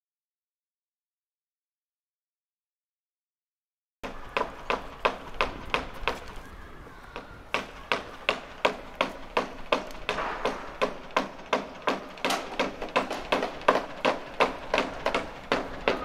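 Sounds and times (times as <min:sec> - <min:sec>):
sharp tapping strikes: 0:07.2 - 0:16.0.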